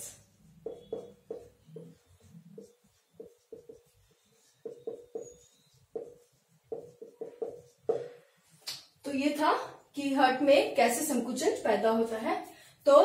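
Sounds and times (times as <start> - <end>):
marker squeaking on whiteboard: 0.0 - 8.4.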